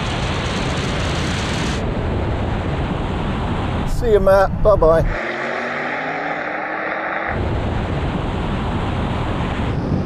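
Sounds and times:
engine and wind rumble: 0.0 - 10.0
drone propellers whirring: 5.0 - 10.0.

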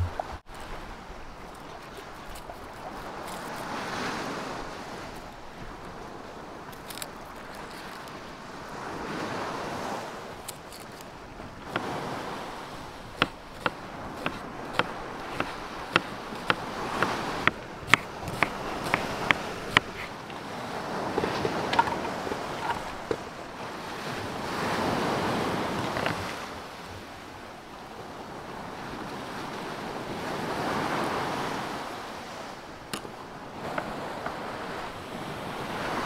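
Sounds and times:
waves washing onto shore: 0.0 - 36.0
knife chopping on a cutting board: 13.2 - 20.1.

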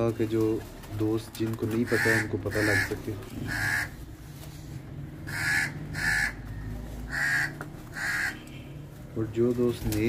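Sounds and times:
crow cawing: 1.8 - 4.0, 5.2 - 8.6.

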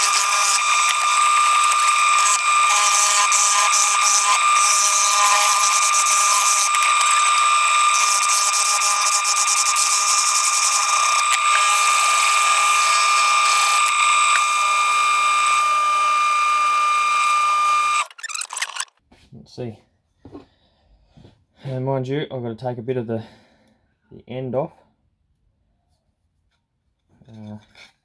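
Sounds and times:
tool hissing on spinning wood: 0.0 - 18.1
wood lathe motor whine: 0.0 - 18.9.

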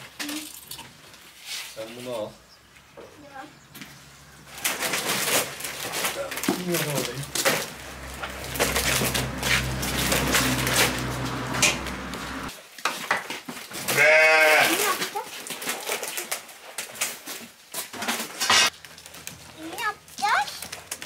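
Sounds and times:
sheep bleating: 13.9 - 14.8.

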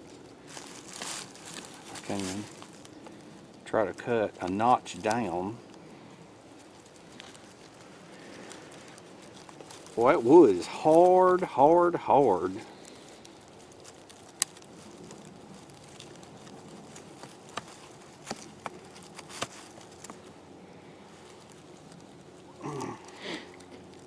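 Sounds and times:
person grunting: 22.6 - 23.5.

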